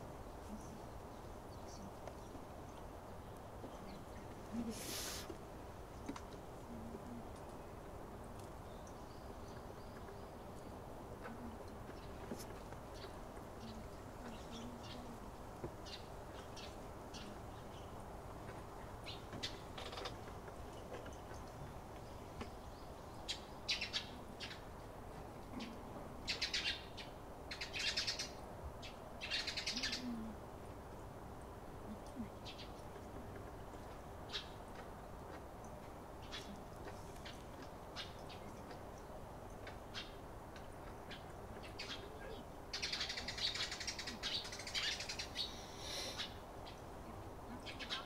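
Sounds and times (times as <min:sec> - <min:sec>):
sparrows chirping: 0:00.4 - 0:48.0.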